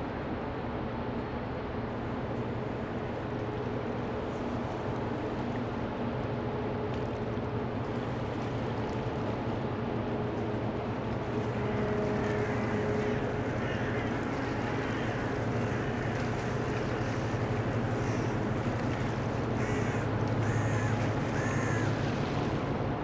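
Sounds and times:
ship engines humming: 0.5s - 23.0s.

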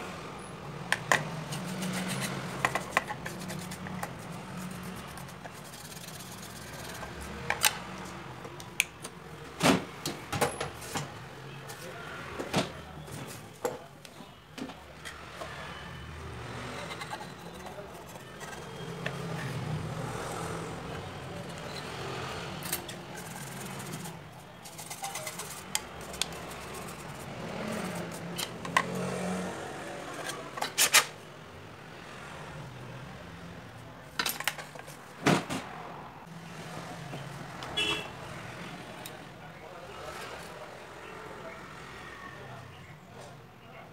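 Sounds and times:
background noise: 0.0s - 43.9s
toothbrush scrubbing: 1.4s - 7.4s, 16.7s - 19.4s, 23.2s - 28.3s
faint voices: 11.4s - 28.7s.

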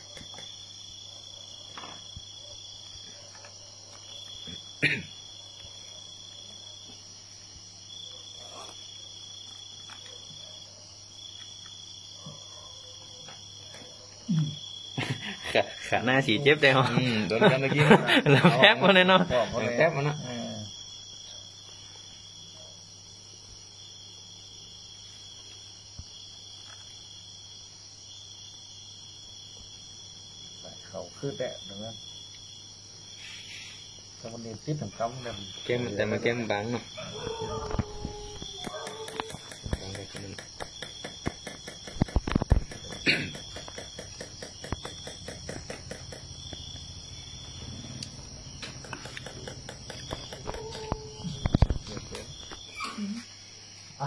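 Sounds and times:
high insect trilling: 0.0s - 12.7s, 30.4s - 54.0s
crickets chirping: 0.0s - 54.0s
regular ticking: 38.6s - 50.8s.

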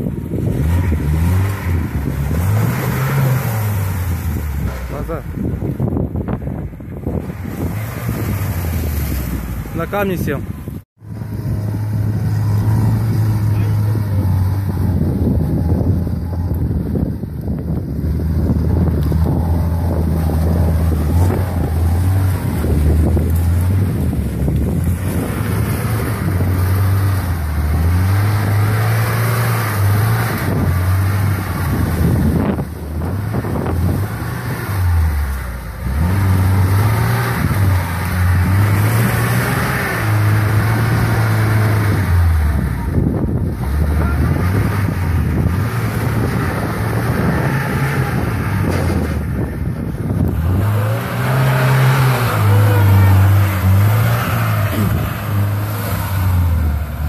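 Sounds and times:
car engine revving: 0.0s - 57.0s
wind on microphone: 0.0s - 57.0s.

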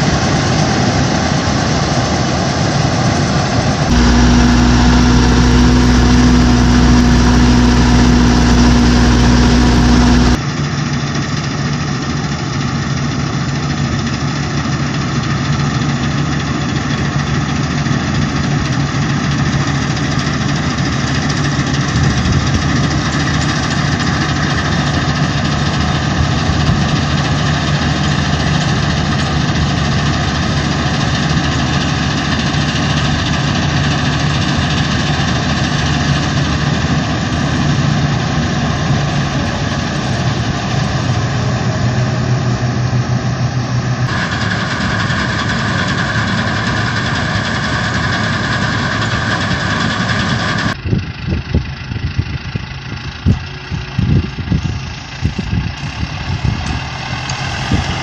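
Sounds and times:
combine harvester engine drone: 0.0s - 58.0s
loud engine: 3.6s - 10.4s, 20.0s - 50.8s, 51.7s - 58.0s.

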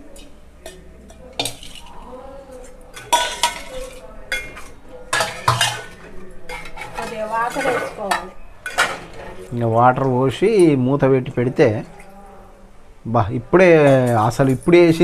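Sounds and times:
metal spatula scraping pot: 1.4s - 9.5s.

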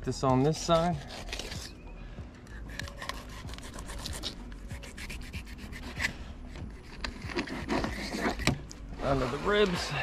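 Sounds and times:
knife scraping along fish bones: 0.7s - 1.8s, 2.5s - 8.6s.

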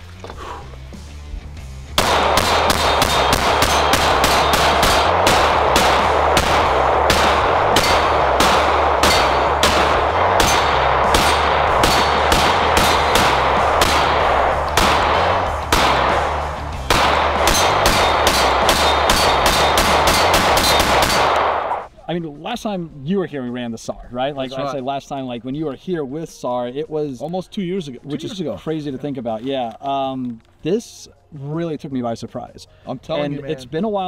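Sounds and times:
rapid pistol shots: 2.0s - 21.9s.

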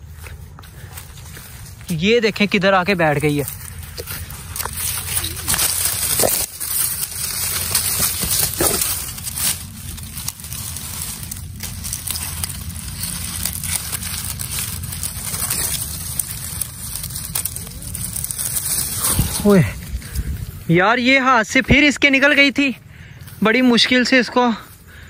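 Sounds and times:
dry leaves rustling and crackling: 0.0s - 25.0s.

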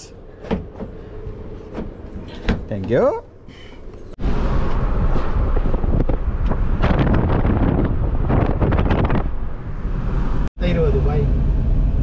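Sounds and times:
low vehicle rumble: 0.2s - 12.0s
wind buffeting microphone: 4.2s - 10.4s.

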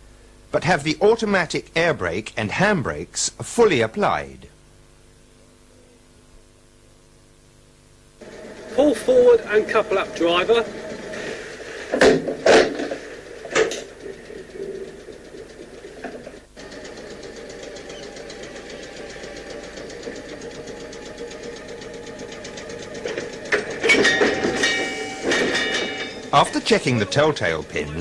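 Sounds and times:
train running with fast ticking: 8.2s - 11.8s, 13.0s - 28.0s.

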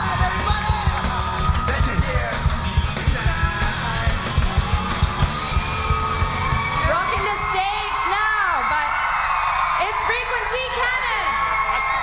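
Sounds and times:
loud rock music: 0.0s - 8.1s
fast drumbeat: 0.0s - 8.6s.

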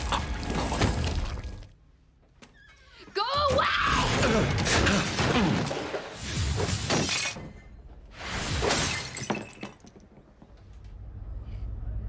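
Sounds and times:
things breaking and crashing: 4.0s - 10.3s
glass shattering: 8.3s - 10.0s.

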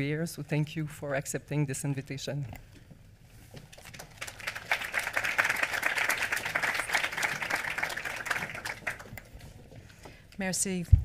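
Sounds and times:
audience applauding: 3.8s - 9.3s.

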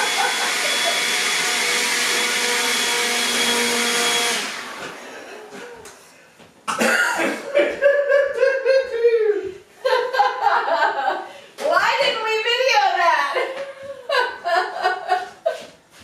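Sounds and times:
people laughing: 0.0s - 1.4s, 5.0s - 5.9s, 7.5s - 11.3s, 13.4s - 15.8s
leaf blower running: 0.0s - 5.8s.

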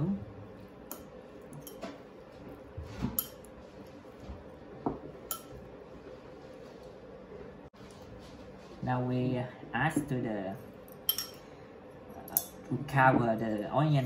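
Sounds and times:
chopsticks clinking against bowl: 5.2s - 5.6s, 10.9s - 11.4s.

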